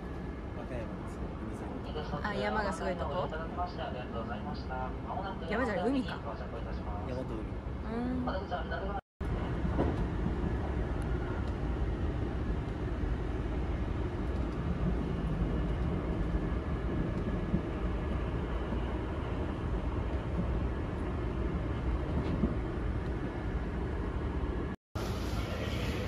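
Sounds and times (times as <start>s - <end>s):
train wheels rumbling on rails: 9.2s - 26.0s.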